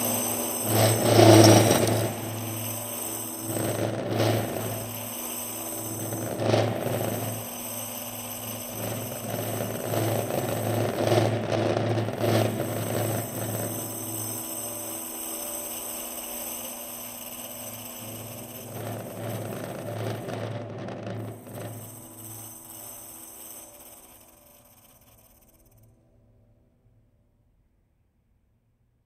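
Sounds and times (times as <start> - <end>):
jingle discs rattling on drums: 18.0 - 25.7.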